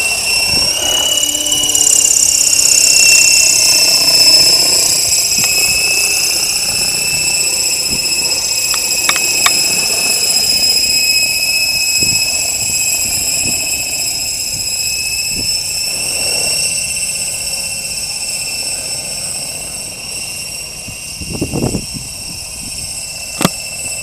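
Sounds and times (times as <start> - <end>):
rc helicopter motor whine: 0.0 - 24.0
sharp ticks: 2.9 - 10.8.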